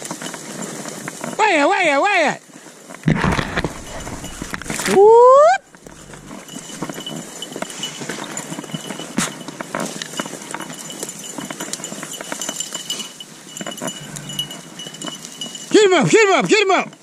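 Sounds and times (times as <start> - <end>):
twigs crackling under footsteps: 2.6 - 14.3.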